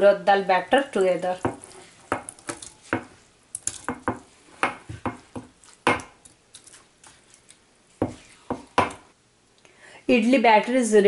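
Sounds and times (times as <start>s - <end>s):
spatula scraping bowl and pot: 1.0s - 3.2s, 6.6s - 8.8s.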